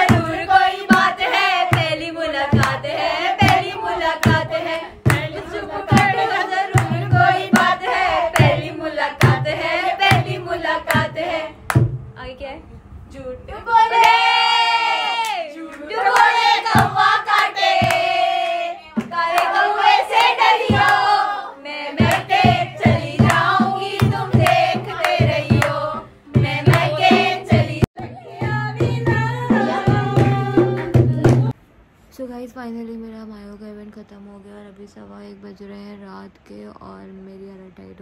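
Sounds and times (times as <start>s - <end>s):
women singing together: 0.0s - 11.8s, 13.5s - 31.6s
rhythmic hand clapping: 0.0s - 12.0s, 15.2s - 21.2s, 22.0s - 31.6s
low drum beat: 0.0s - 12.2s, 22.0s - 31.6s.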